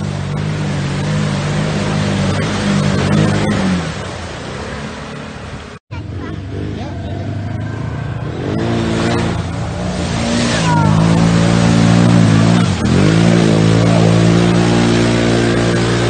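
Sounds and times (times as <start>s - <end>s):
quad engine revving: 0.0s - 16.0s.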